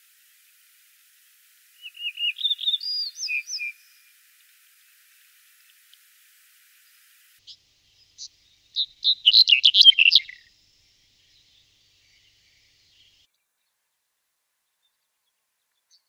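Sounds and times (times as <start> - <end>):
bird singing: 1.8 - 4.5, 6.8 - 13.4.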